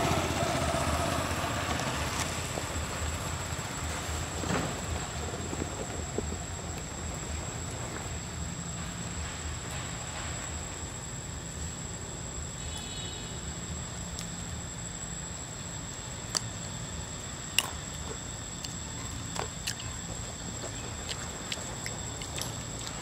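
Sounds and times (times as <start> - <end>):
sharp clicks and ticks: 17.5 - 19.9.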